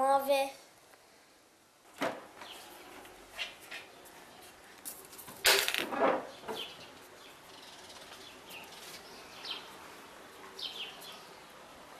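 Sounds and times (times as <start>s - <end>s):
small birds chirping: 6.3s - 11.9s.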